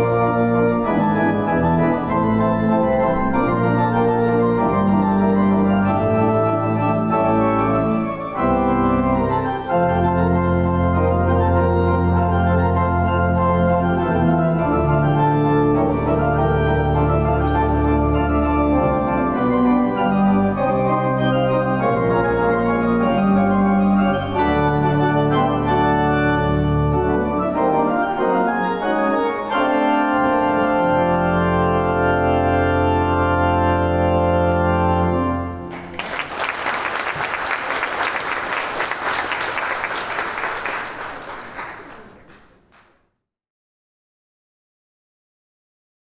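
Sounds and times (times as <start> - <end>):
church organ playing chords: 0.0 - 36.0
audience applause: 35.6 - 43.0.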